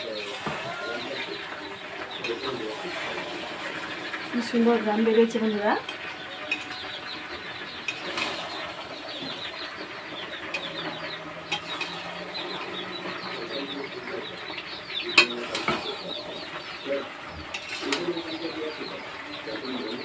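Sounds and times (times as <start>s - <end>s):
chirping: 0.0s - 20.0s
spatula stirring curry in pot: 5.8s - 18.3s.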